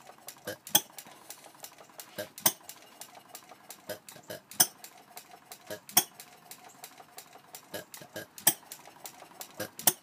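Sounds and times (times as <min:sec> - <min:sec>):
engine ticking: 0:00.0 - 0:10.0
engine firing pops: 0:09.5 - 0:10.0.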